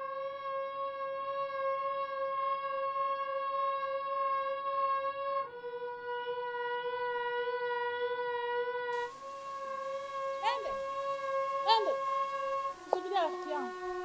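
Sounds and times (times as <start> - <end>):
long held music note: 9.0 - 14.0.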